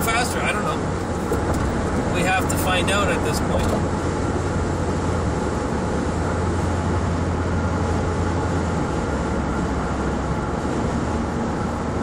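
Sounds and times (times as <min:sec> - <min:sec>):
low engine drone: 0:00.0 - 0:12.0
road noise inside car: 0:00.0 - 0:12.0.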